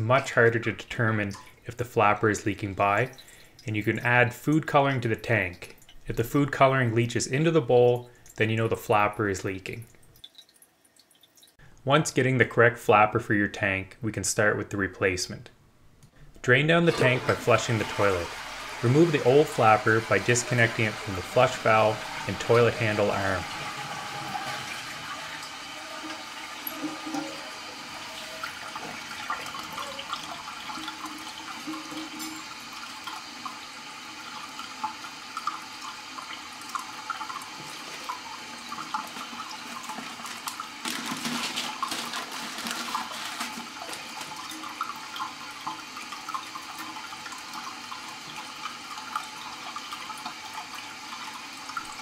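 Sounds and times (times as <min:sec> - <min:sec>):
toilet water running and trickling: 0:00.0 - 0:11.7, 0:16.8 - 0:52.0
water drips spattering: 0:02.8 - 0:06.6, 0:07.9 - 0:11.8.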